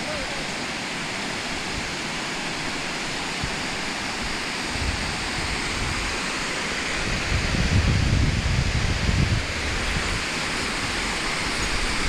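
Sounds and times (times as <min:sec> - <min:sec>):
stream and waterfall rushing: 0:00.0 - 0:12.0
wind buffeting microphone: 0:04.7 - 0:06.2, 0:07.0 - 0:12.0.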